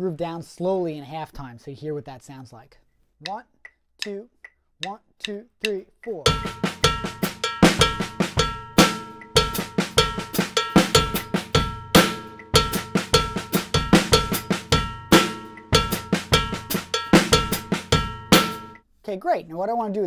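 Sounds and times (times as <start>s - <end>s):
bass drum: 6.3s - 18.8s
ringing cowbell: 6.3s - 18.8s
snare drum: 6.3s - 18.8s.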